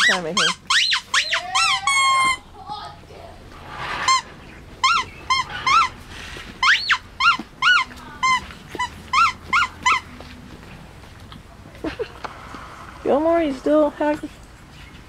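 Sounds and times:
puppy yelping and whining: 0.0 - 2.5, 4.0 - 10.2.

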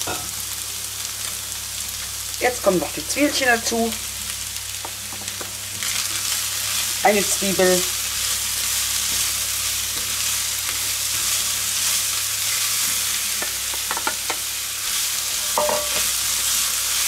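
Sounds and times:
food sizzling in a frying pan: 0.0 - 17.0
spatula tapping a steel bowl: 15.6 - 16.1.

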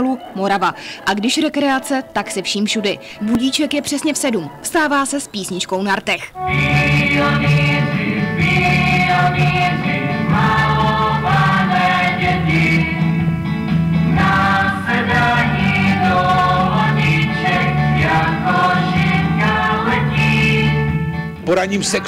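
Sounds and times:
choir singing: 6.4 - 13.2, 14.0 - 22.0
steady accompaniment: 6.4 - 22.0.

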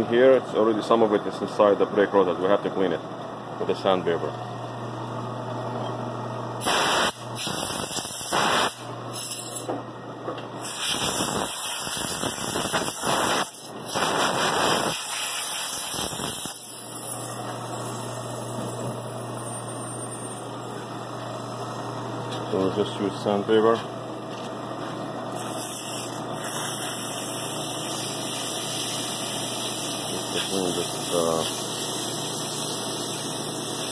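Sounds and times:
sandpaper rasping on spinning rotor: 25.4 - 31.7.

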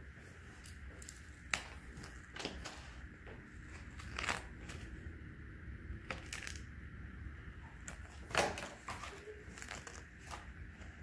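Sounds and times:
paper rustling: 0.6 - 5.0, 7.8 - 11.0.

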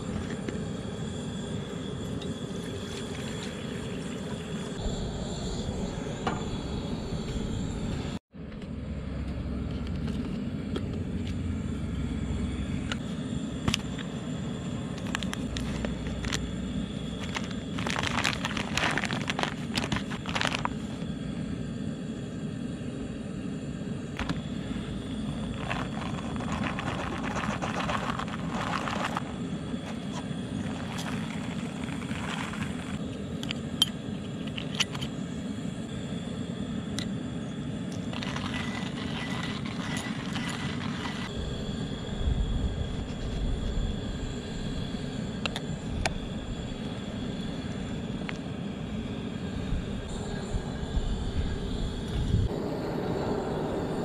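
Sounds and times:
camp stove burner rushing: 0.0 - 8.2, 9.7 - 52.7
coffee bag crinkling: 14.9 - 16.5, 17.1 - 20.9, 25.2 - 30.0, 30.6 - 33.0, 38.0 - 41.3
hand-cranked coffee grinder: 14.9 - 16.5, 17.1 - 20.9, 24.2 - 33.0, 37.9 - 41.3.

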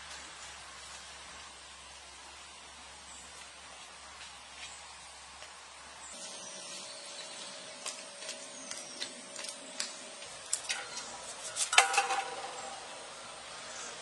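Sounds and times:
crown clattering into metal bowl: 11.6 - 12.8.

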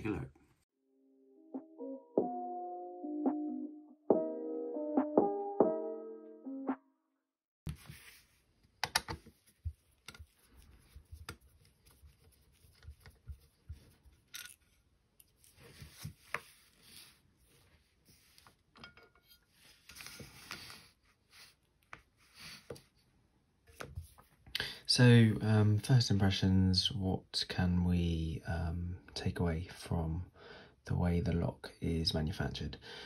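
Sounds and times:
soft rubbing: 7.7 - 8.6, 9.2 - 14.3.

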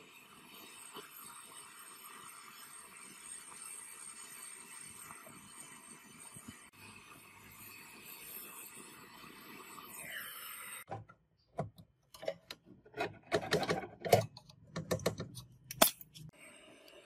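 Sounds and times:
torch flame hissing: 0.0 - 10.9.

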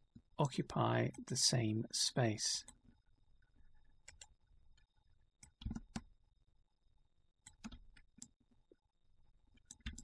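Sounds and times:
computer mouse clicks: 4.0 - 6.1, 7.4 - 8.4, 9.5 - 10.0.

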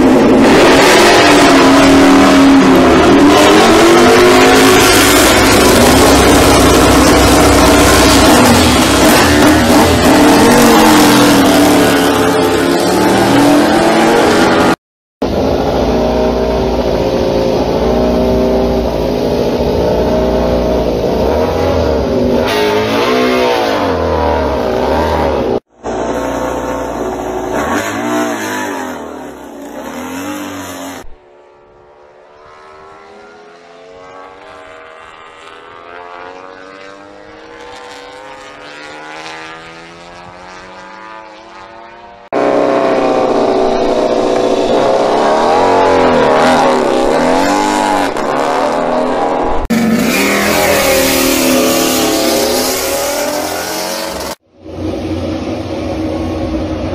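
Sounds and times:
race bike engine revving: 33.9 - 56.1.

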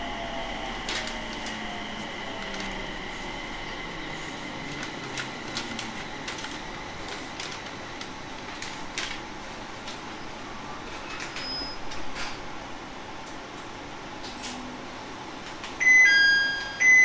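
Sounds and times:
train cabin hum: 0.0 - 10.7.

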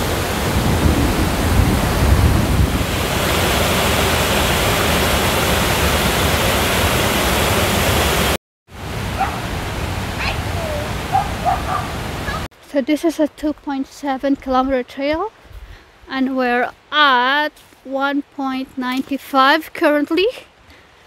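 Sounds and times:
water rushing over rocks: 0.0 - 12.5.

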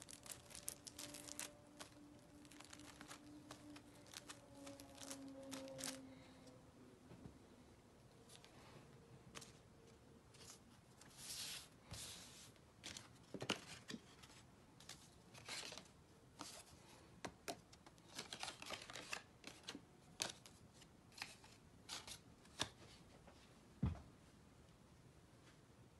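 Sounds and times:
paper box rustling: 0.0 - 6.1.

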